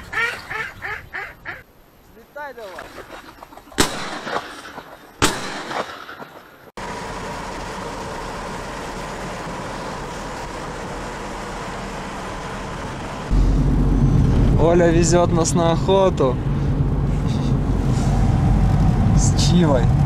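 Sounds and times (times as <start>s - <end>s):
shotgun shot: 3.8s - 6.4s
car engine and road noise: 6.7s - 20.0s.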